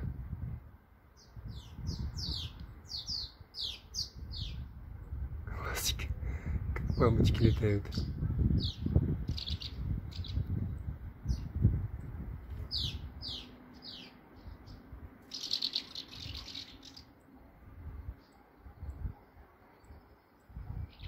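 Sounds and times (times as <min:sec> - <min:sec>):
swallows twittering: 0:01.2 - 0:04.7, 0:06.8 - 0:11.6, 0:12.5 - 0:21.0.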